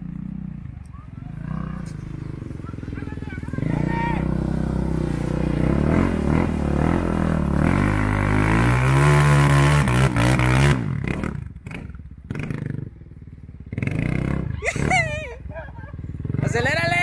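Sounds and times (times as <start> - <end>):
atv engine revving: 0.0 - 17.0.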